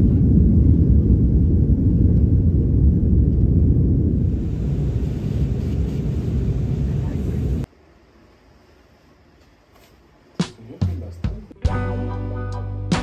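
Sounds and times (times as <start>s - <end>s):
jet engines rumbling: 0.0s - 11.6s.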